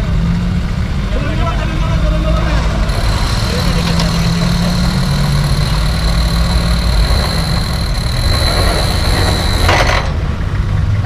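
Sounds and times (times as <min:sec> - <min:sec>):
high whine: 0:02.9 - 0:10.0
short noisy burst: 0:02.9 - 0:10.0.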